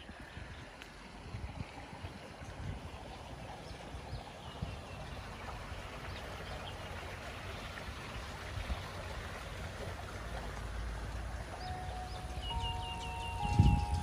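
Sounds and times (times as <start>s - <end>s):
wind on microphone: 0.0s - 5.0s, 11.6s - 14.0s.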